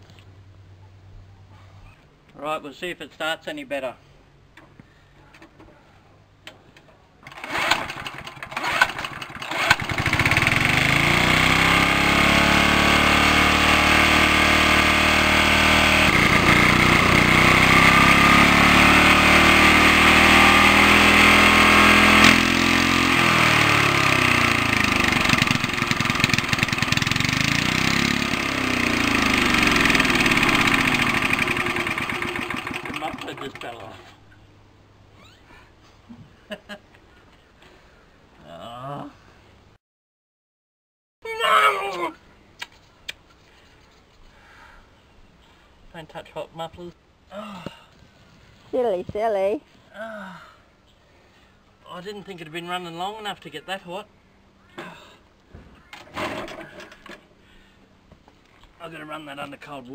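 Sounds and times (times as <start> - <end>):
lawn mower engine running: 7.2 - 34.1.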